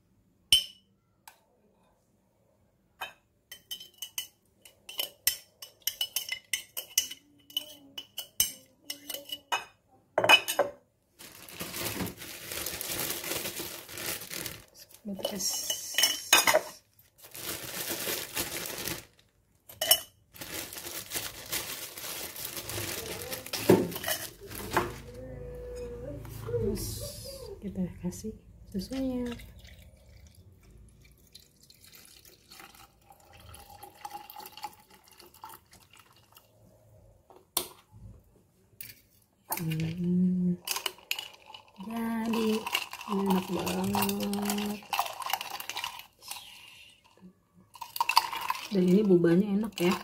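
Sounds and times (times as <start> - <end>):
metal spoon clinking on glass: 3.0 - 10.7
ice cubes rustling and knocking: 11.2 - 15.8, 16.5 - 25.1, 40.6 - 46.5, 47.7 - 50.0.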